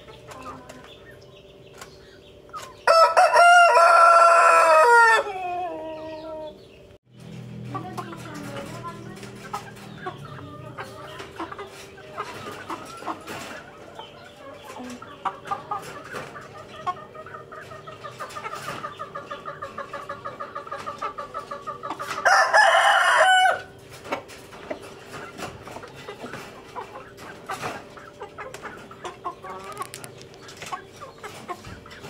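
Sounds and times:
roosters clucking: 0.0 - 32.0
rooster crowing: 2.8 - 6.5, 22.2 - 23.7.

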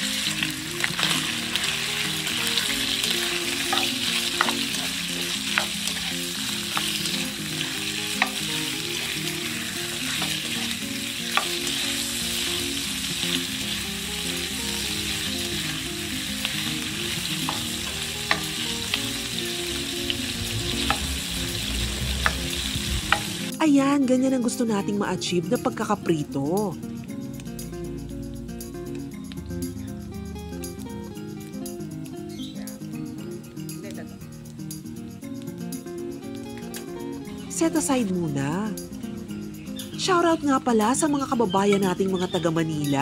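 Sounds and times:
meat sizzling in hot oil: 0.0 - 23.6.

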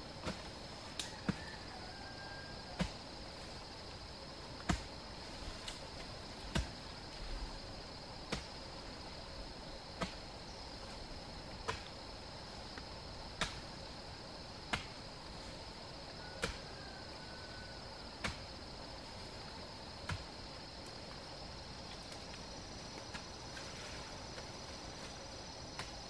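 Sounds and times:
digging tool chopping soil: 4.7 - 4.9.

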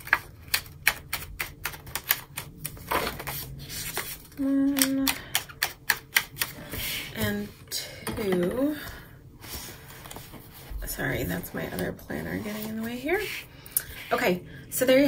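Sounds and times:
planner pages clicking and snapping: 0.0 - 4.1
person humming: 4.3 - 5.4.

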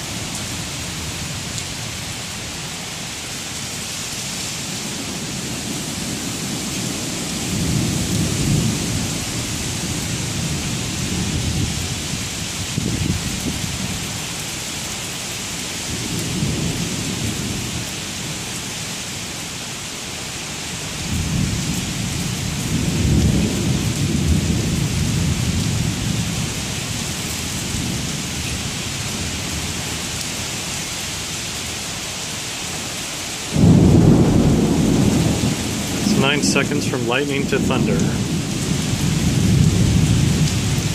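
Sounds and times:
heavy rain on pavement: 0.0 - 40.9
thunder rumbling: 33.6 - 40.9.

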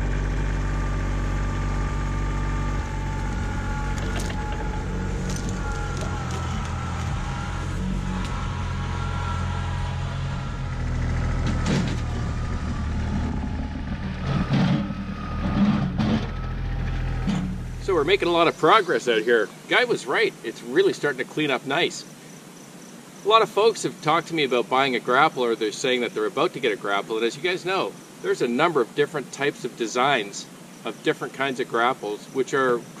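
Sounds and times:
tractor diesel engine under load: 0.0 - 18.7.

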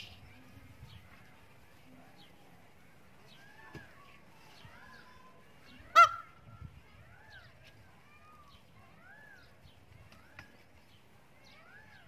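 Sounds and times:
birds chirping: 0.0 - 12.0
peacock honking call: 5.9 - 6.4.

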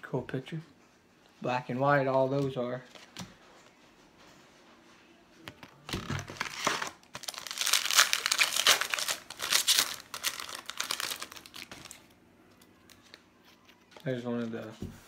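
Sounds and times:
foil wrapper tearing and crinkling: 6.2 - 12.1.

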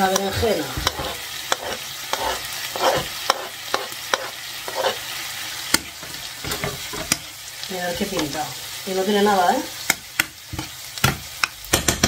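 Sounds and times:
utensil scraping pan: 0.0 - 5.1
vegetables sizzling in a pan: 0.0 - 12.0.

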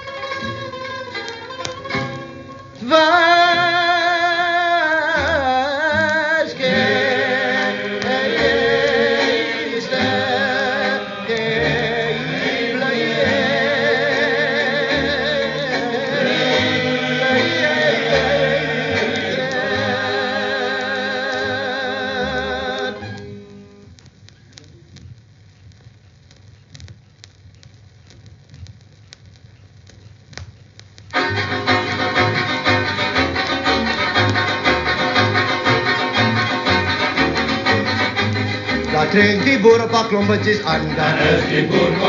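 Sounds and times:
voices singing with heavy vibrato: 2.8 - 23.9, 31.3 - 42.0.

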